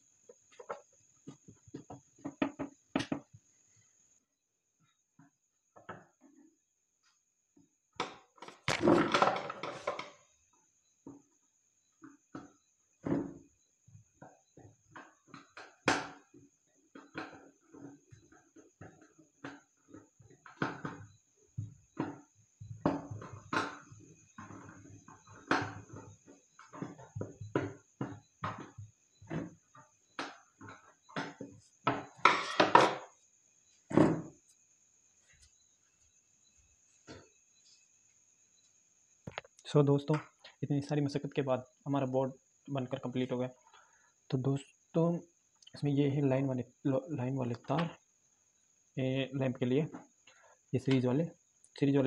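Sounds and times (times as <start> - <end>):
knocks and thuds on wooden board: 0.5 - 3.4, 8.0 - 10.2, 14.9 - 33.1, 33.9 - 34.4.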